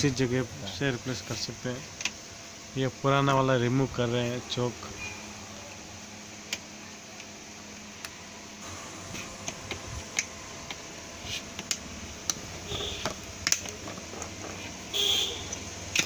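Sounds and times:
plastic scraping: 11.2s - 14.9s.

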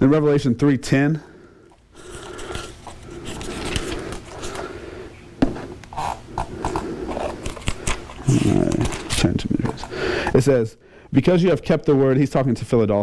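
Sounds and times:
thin pages rustling: 2.0s - 4.7s.

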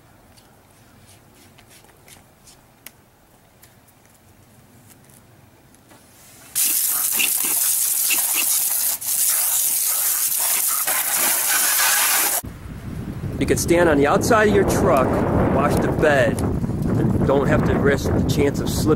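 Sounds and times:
water spraying from wash wand: 6.6s - 12.4s.

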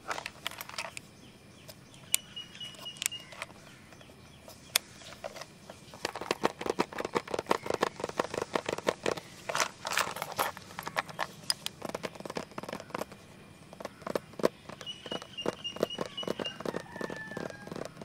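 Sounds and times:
fingernails scratching and tapping plastic: 4.8s - 18.0s.

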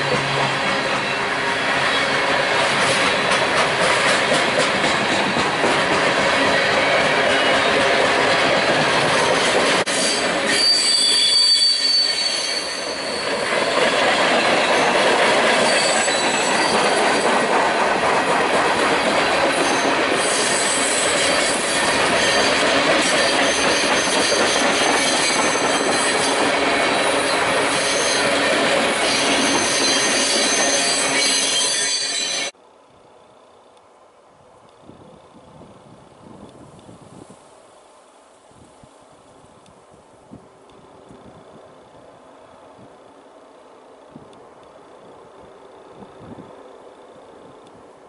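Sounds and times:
train wheels rumbling and rattling: 0.0s - 32.6s
high-pitched wheel squeal: 9.2s - 13.9s, 15.6s - 17.2s, 29.0s - 32.5s.

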